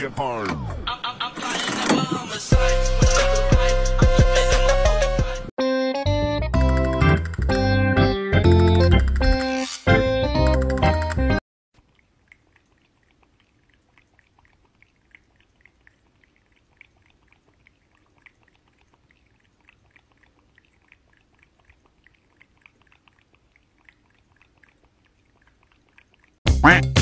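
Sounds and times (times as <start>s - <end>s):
cat lapping water: 11.7s - 26.4s.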